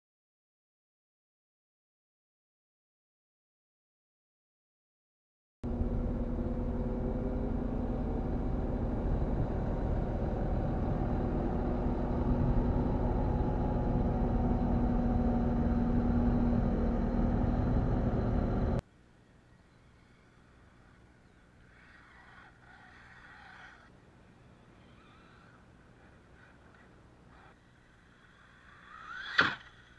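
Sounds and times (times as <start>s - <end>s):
diesel engine running: 5.6s - 18.8s.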